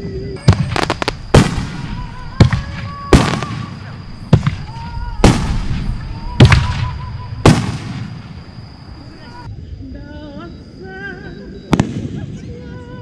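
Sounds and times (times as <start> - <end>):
fireworks bangs with crackle: 0.4 - 9.5, 11.7 - 12.6.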